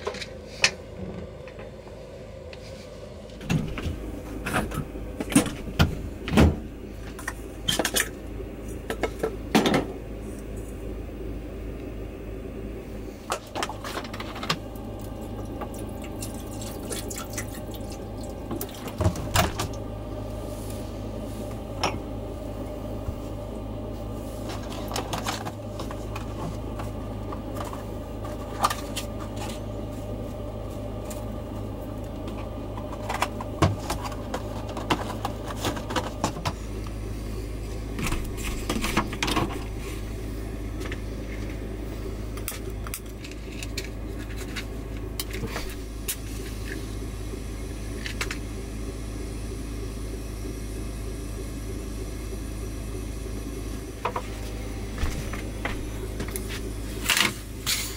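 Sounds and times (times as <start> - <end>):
gas burner hissing: 0.0 - 57.9.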